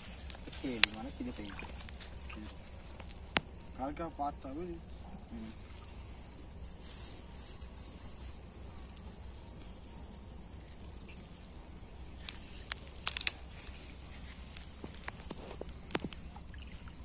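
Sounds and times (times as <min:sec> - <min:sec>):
high insect buzz: 0:00.0 - 0:17.0
small water splashes and clicks: 0:00.2 - 0:03.5, 0:12.2 - 0:17.0.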